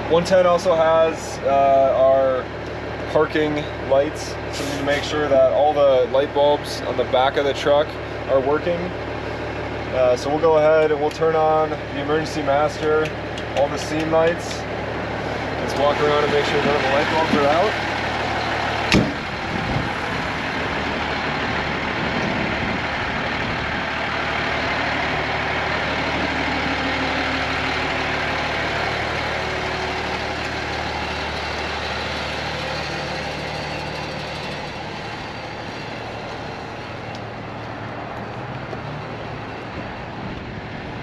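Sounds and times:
diesel engine idling: 0.0 - 41.0
cab door shutting: 18.9 - 19.2.

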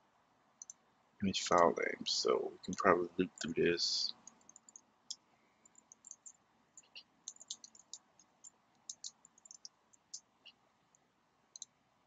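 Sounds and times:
keyboard keystrokes clicking: 7.3 - 8.0, 8.9 - 9.7.

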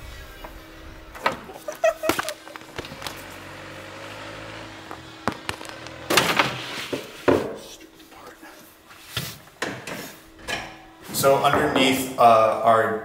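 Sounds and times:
tools and metal hardware clanking: 9.6 - 12.0.

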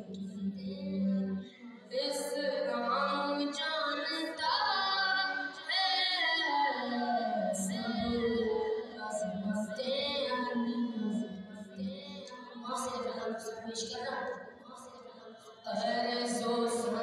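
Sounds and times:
boy singing unaccompanied: 1.9 - 17.0.

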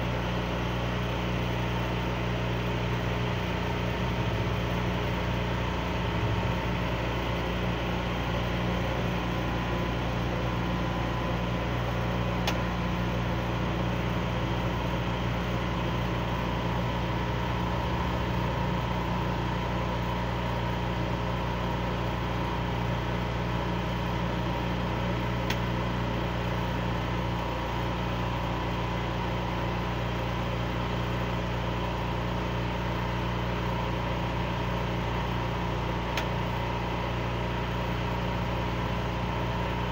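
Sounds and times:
engine idling: 0.0 - 39.9.

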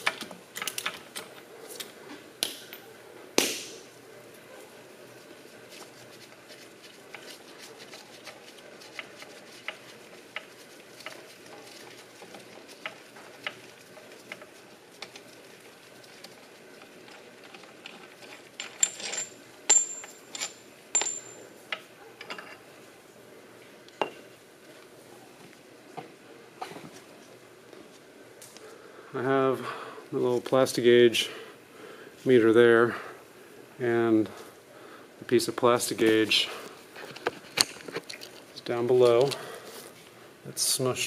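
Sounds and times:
metal clicks and clinks: 17.5 - 22.6.

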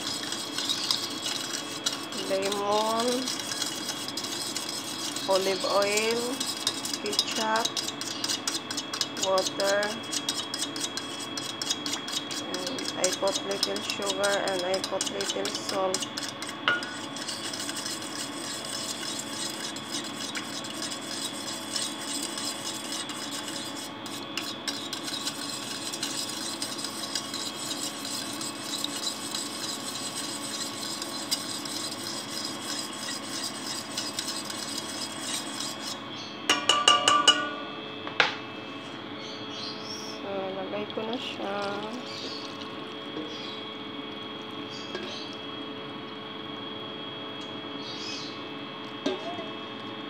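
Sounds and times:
metal spoon scraping a metal bowl: 0.0 - 37.6
spoon clinking: 36.5 - 37.6.

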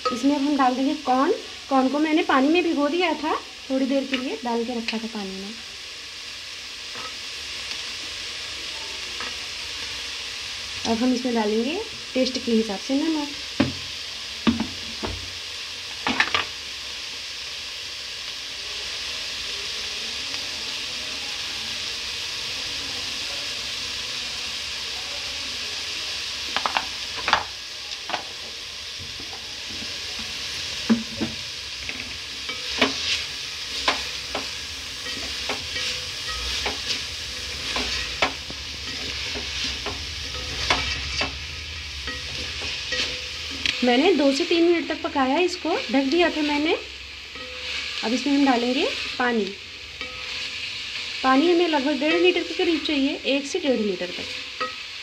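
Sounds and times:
vegetables sizzling in a pot: 0.0 - 55.0
wooden spatula scraping a pot: 31.8 - 44.6, 47.3 - 49.2.

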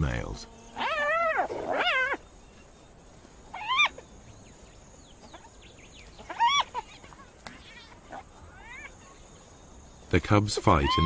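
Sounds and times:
faint high chirps: 0.0 - 11.0
hyena whining: 0.1 - 9.6, 10.7 - 11.0.

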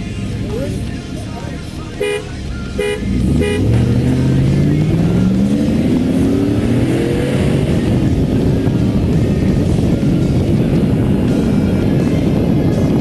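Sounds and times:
truck engine accelerating at full throttle: 0.0 - 13.0
horn toots: 1.9 - 4.2.

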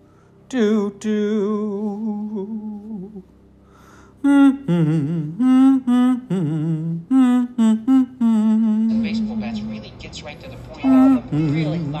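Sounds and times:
man singing wordless notes: 0.5 - 3.3, 4.2 - 9.8, 10.8 - 11.6
man humming: 4.2 - 9.7, 10.8 - 11.6.

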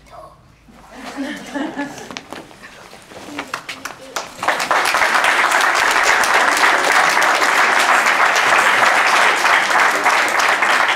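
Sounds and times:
audience applauding: 3.3 - 10.9.

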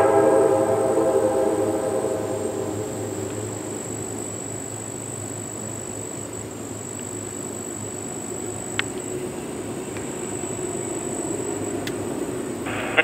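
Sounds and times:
train horn: 0.0 - 4.6
low steady rumble: 0.0 - 6.8
insects droning: 0.0 - 13.0
train rumble: 0.0 - 13.0.

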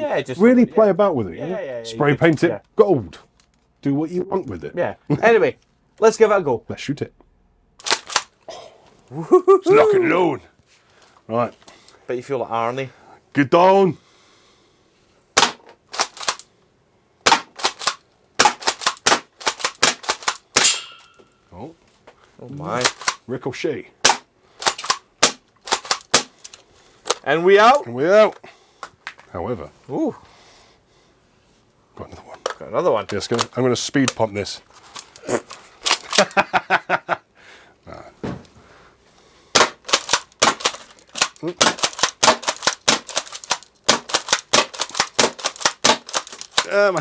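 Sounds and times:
airsoft shotgun firing and pumping: 15.4 - 16.4, 17.2 - 20.8, 24.0 - 26.4, 39.5 - 46.7.

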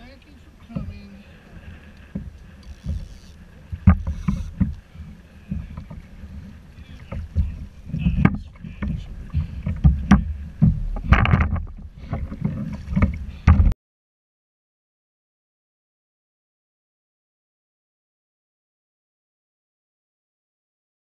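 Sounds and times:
wind buffeting microphone: 0.0 - 13.8
knocks and clatter on kayak: 0.6 - 1.0, 1.6 - 13.8.

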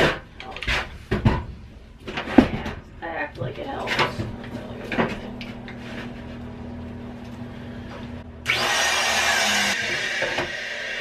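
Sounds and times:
low steady hum: 0.1 - 8.5
power saw motor starting: 8.4 - 11.0.

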